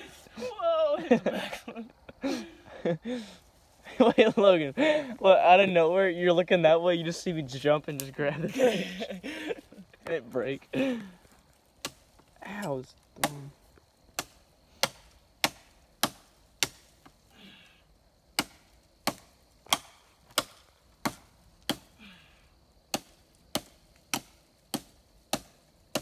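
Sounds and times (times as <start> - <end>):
hatchet chopping branch: 11.8 - 12.2, 14.1 - 17.2, 18.4 - 22.0, 22.9 - 26.0.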